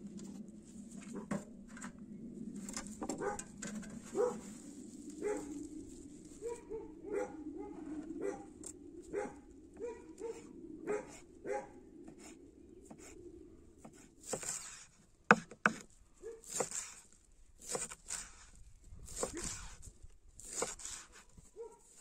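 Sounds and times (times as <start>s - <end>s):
steady low whine: 0.0s - 13.8s
rustling: 2.6s - 6.7s.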